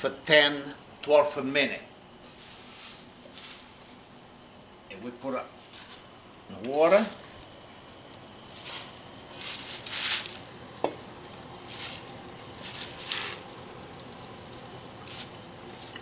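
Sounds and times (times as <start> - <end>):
boiling water hissing and bubbling: 5.6 - 16.0.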